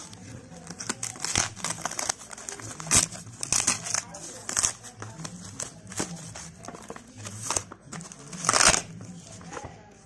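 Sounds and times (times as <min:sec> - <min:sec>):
cardboard crinkling and rustling: 0:00.0 - 0:10.0.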